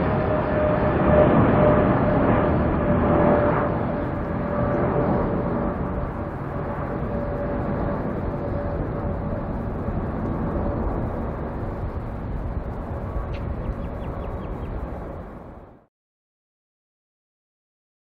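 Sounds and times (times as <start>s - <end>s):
jet engine rumble with whine: 0.0s - 15.9s.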